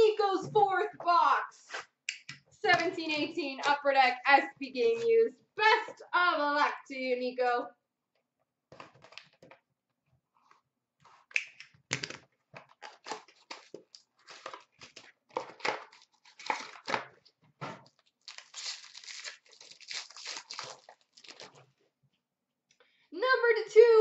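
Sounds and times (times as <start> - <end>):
wrapper crinkling: 12.0 - 17.0, 17.9 - 21.7
cardboard tearing: 12.7 - 17.0, 17.9 - 21.7.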